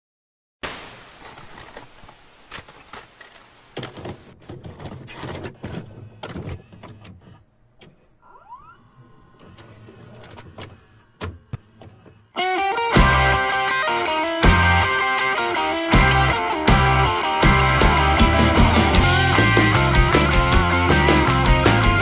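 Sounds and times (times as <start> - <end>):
hiss: 0.6 - 3.8.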